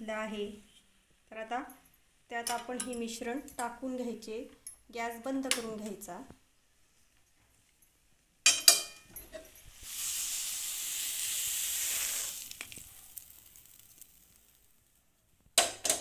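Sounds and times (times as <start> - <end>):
metal pan clanking on plate: 8.5 - 9.5
hot mixture hissing: 9.6 - 15.0.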